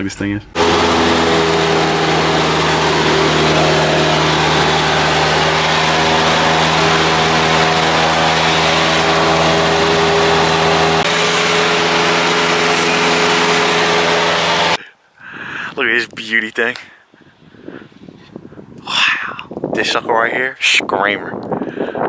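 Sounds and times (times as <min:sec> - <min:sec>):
propeller plane engine droning: 0:00.6 - 0:14.8.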